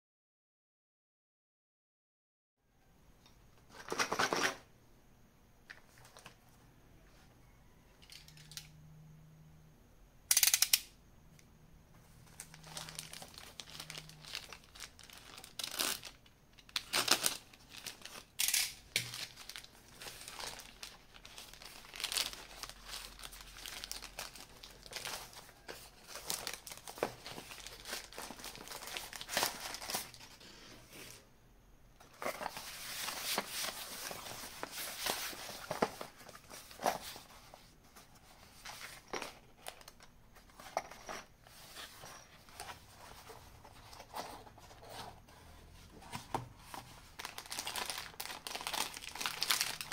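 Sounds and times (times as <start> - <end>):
plastic bag crinkling: 12.3 - 30.4, 46.6 - 49.9.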